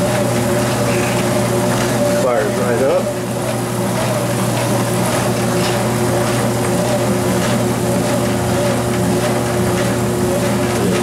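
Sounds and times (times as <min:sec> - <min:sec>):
treadmill motor humming and whining: 0:00.0 - 0:11.0.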